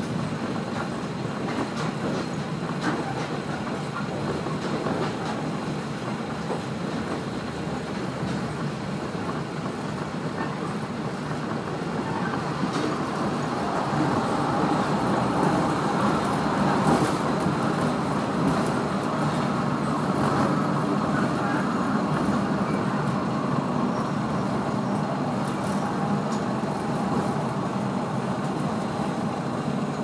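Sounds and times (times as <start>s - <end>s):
railcar engine and wheels on rail: 0.0s - 30.0s.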